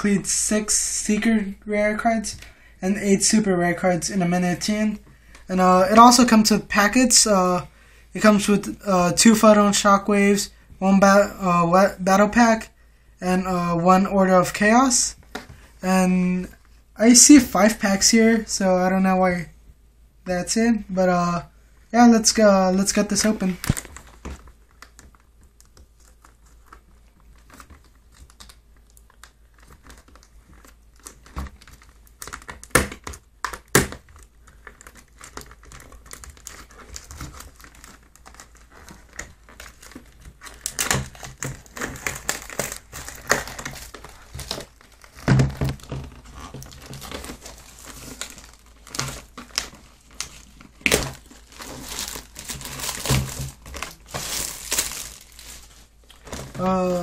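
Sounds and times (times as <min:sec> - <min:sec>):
plastic wrap crinkling: 0:22.8 - 0:57.0
cardboard packaging pulled open: 0:34.1 - 0:57.0.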